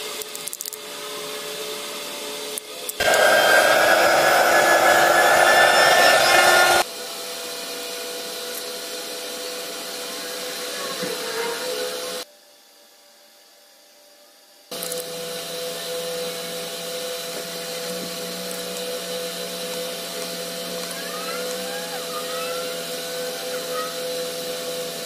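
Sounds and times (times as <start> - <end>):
small electric motor whirring: 3.0 - 6.8.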